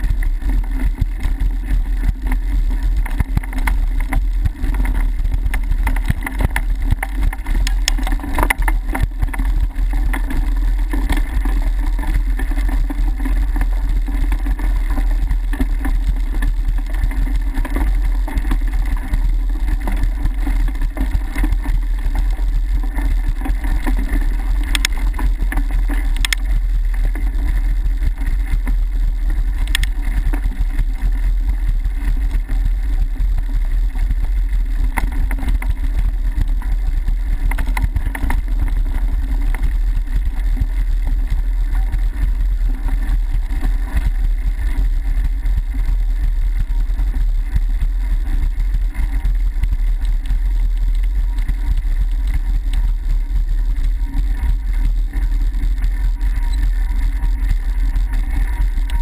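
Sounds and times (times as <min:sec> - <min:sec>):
bike rattling: 0:00.0 - 0:59.0
mountain bike rumbling on dirt: 0:00.0 - 0:59.0
sharp clicks: 0:26.0 - 0:26.5, 0:29.6 - 0:30.0.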